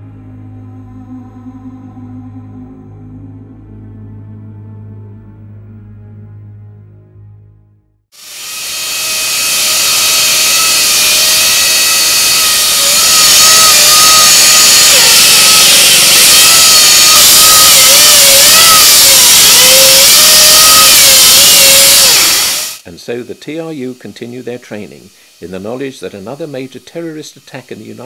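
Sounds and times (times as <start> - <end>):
chainsaw cutting concrete: 8.2 - 22.8.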